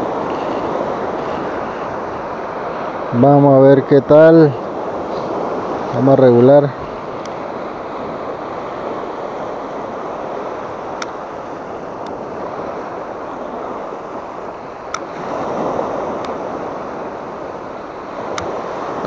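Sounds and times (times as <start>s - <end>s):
surf washing up sand beach: 0.0s - 19.0s
faint sharp clicks: 14.9s - 15.1s, 18.3s - 18.5s.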